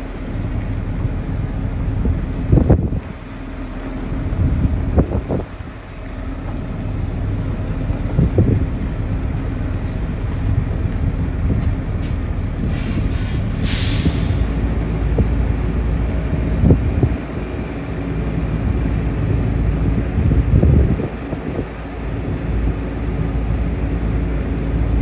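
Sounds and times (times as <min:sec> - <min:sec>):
truck diesel engine running: 0:00.0 - 0:25.0
air brake hiss: 0:12.6 - 0:14.6.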